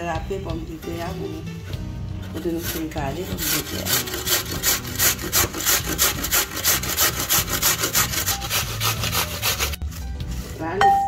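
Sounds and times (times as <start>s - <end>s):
potato grated on metal grater: 2.2s - 9.9s.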